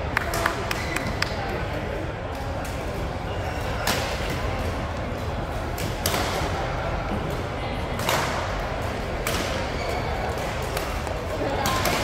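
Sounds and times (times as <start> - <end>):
background murmur: 0.0 - 12.0.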